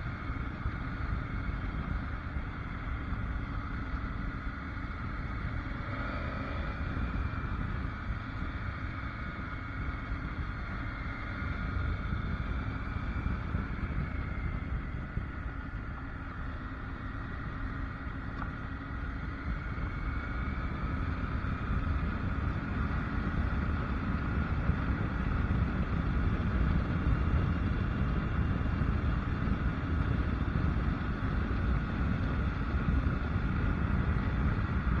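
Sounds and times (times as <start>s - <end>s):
motorcycle engine running: 0.0s - 35.0s
road and wind noise: 0.0s - 35.0s.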